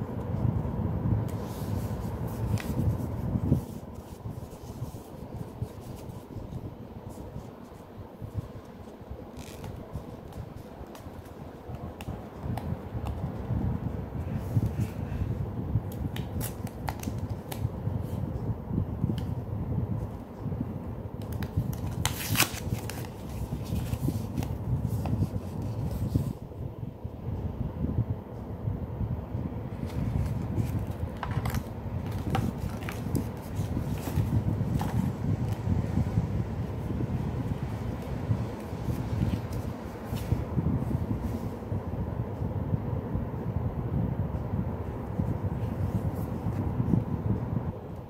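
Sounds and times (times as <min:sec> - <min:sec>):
low background rumble: 0:00.0 - 0:48.0
paper wrapping rustling: 0:01.3 - 0:08.4, 0:21.2 - 0:26.3, 0:29.8 - 0:35.6.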